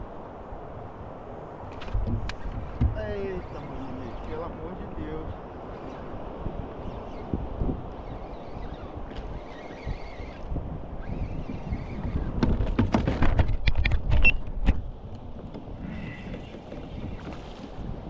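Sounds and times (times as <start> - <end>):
water noise: 0.0 - 18.0
wind noise on microphone: 0.0 - 18.0
camera knocks and clunks: 1.7 - 3.0, 12.3 - 17.7.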